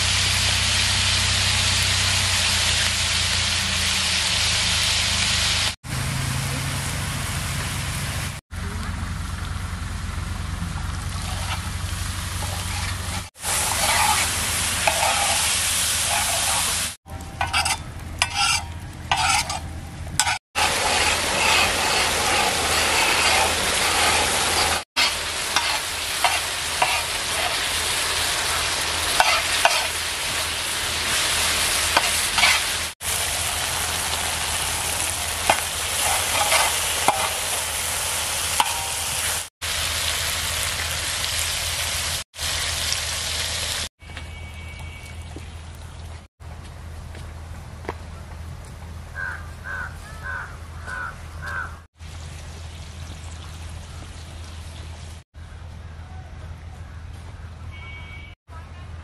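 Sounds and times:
meat sizzling on a hot pan: 0:00.0 - 0:05.8, 0:13.2 - 0:19.5, 0:20.2 - 0:43.9
water poured onto hot pan: 0:11.1 - 0:17.8, 0:20.6 - 0:43.9
spatula scraping a pan: 0:12.4 - 0:27.7, 0:29.1 - 0:30.4, 0:31.9 - 0:32.9, 0:35.4 - 0:37.7, 0:38.6 - 0:39.5.

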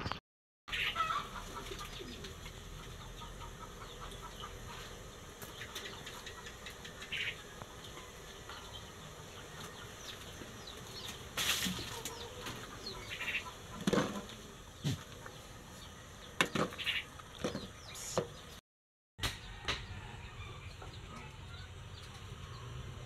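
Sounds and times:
chickens clucking: 0:00.7 - 0:18.6, 0:19.6 - 0:22.7.

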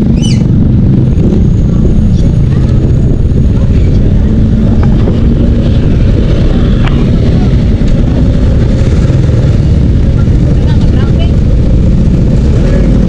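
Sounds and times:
motorcycle engine running: 0:00.0 - 0:13.0
wind rumble on microphone: 0:00.0 - 0:13.0.

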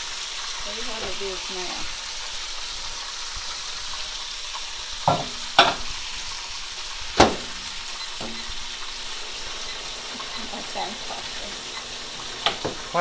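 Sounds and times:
chicken sizzling in hot oil: 0:00.0 - 0:13.0
sharp knocks: 0:07.2 - 0:07.6.

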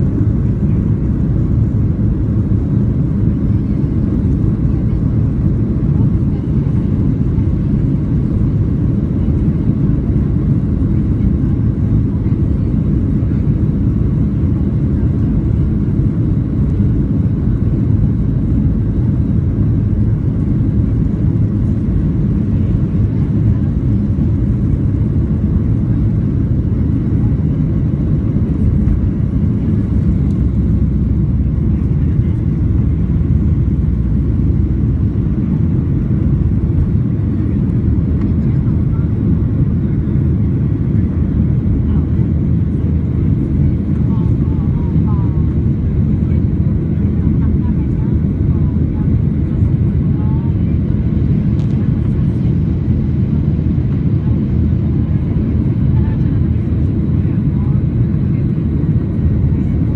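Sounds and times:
jet engines deep rumble: 0:00.0 - 0:59.9.

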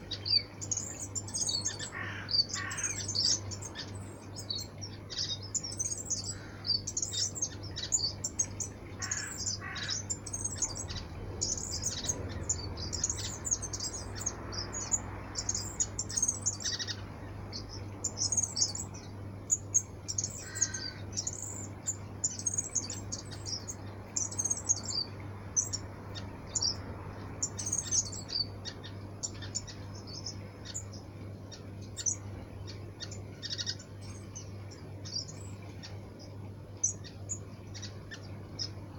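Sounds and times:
flock of birds chirping: 0:00.0 - 0:38.9
steady low hum: 0:00.0 - 0:38.9.

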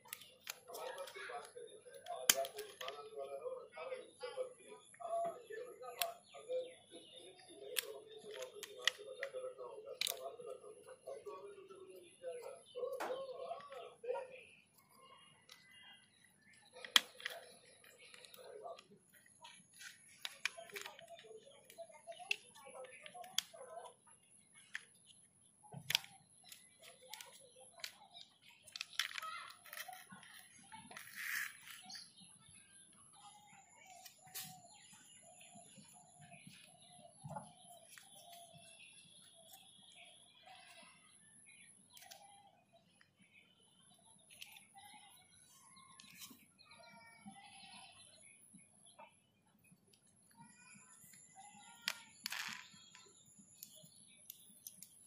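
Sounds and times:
plastic toy parts clicking: 0:00.0 - 0:03.0, 0:05.9 - 0:06.2, 0:07.3 - 0:10.5, 0:14.7 - 0:24.0, 0:24.6 - 0:25.1, 0:25.8 - 0:32.0, 0:41.8 - 0:42.3, 0:44.2 - 0:44.9, 0:50.4 - 0:55.0
birds chirping: 0:00.0 - 0:55.0.

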